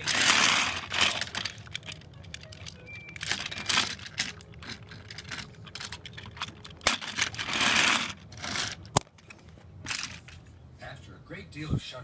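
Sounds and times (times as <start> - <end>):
toy train clicking on plastic track: 0.0 - 8.9.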